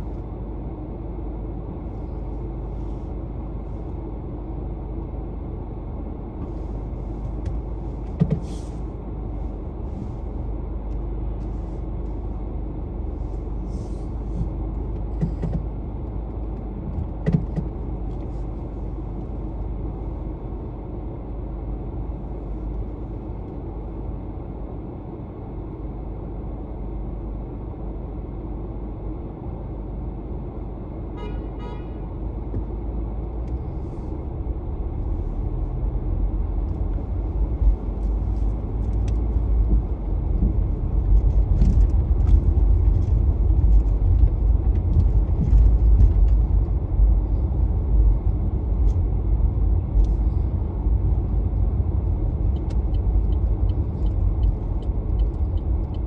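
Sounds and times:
car road and engine rumble: 0.0s - 56.0s
car horn toot: 31.2s - 32.1s.

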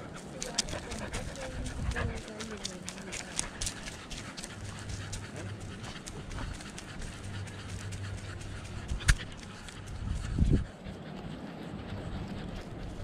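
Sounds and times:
dog footfalls and clicks: 0.2s - 10.1s.

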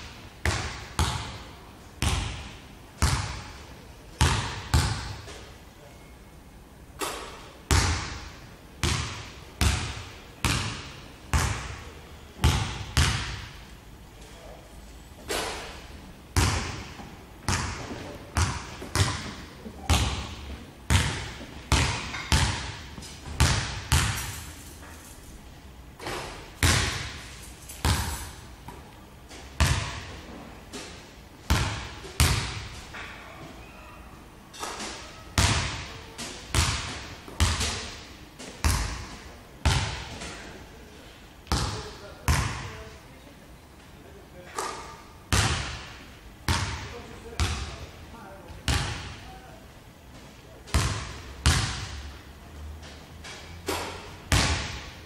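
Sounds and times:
basketball bouncing on hardwood floor: 0.5s - 1.4s, 2.0s - 3.4s, 12.4s - 13.4s, 16.4s - 24.4s, 27.8s - 28.8s, 29.6s - 30.1s, 36.5s - 37.9s, 50.7s - 51.9s, 54.3s - 54.9s.

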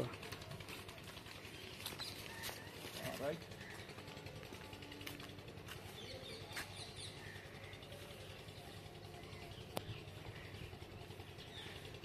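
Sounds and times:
faint birds chirping: 0.0s - 12.0s
low steady hum: 0.1s - 12.0s.

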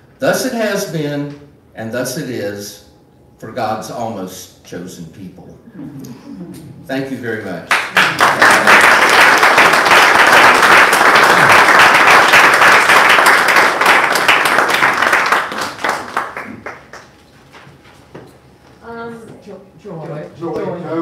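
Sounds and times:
congregation applauding: 7.7s - 17.2s.

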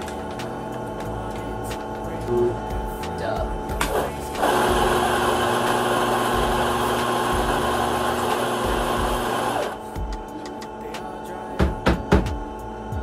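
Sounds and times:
coffee grinder whirring: 3.6s - 10.0s
sharp knocks: 11.6s - 12.4s.

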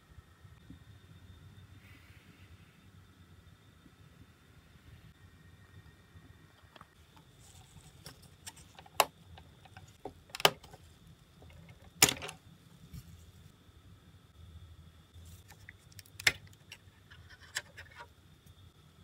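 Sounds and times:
model parts clicking and knocking: 7.9s - 10.8s, 11.4s - 12.4s.

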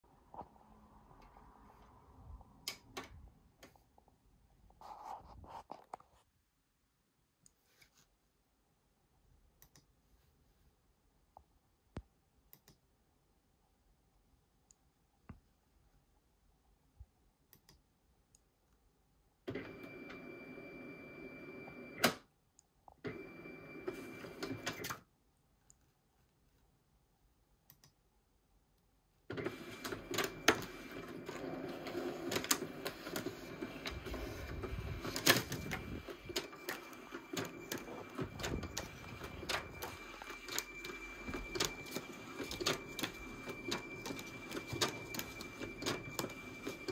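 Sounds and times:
document scanner motor whirring: 23.1s - 24.8s, 29.3s - 46.9s
sheets clicking through scanner: 29.4s - 46.9s.

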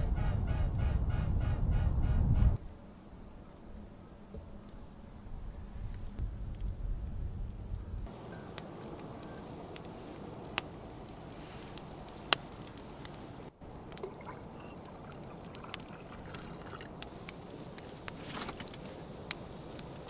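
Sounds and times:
campfire crackling and popping: 6.2s - 20.0s.

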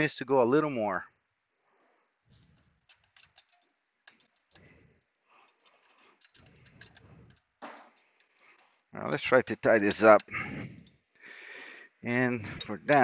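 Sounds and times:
metallic clicks and rattles: 2.4s - 11.2s, 12.4s - 13.0s.

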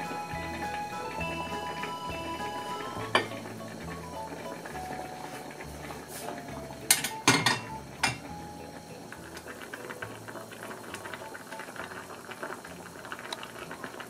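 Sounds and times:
ceramic dishes clinking: 3.1s - 3.4s, 6.9s - 8.3s.

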